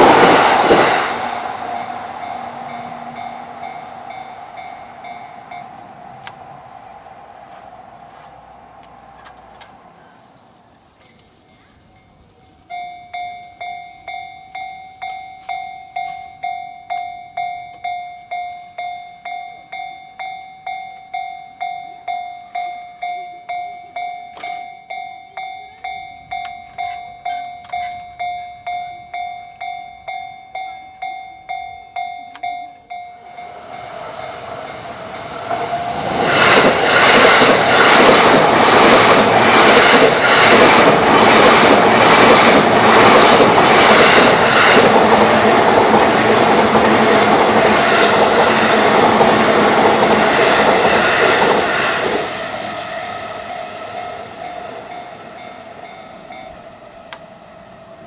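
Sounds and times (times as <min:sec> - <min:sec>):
train wheels clattering on rails: 0:00.0 - 0:10.1, 0:20.6 - 0:57.2.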